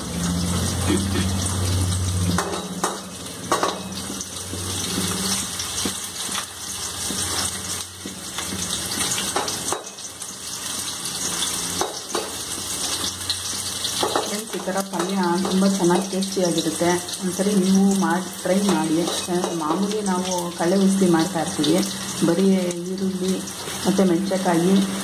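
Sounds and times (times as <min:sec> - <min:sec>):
onions sizzling in oil: 0:00.0 - 0:25.0
metal ladle scraping a pan: 0:03.8 - 0:09.6.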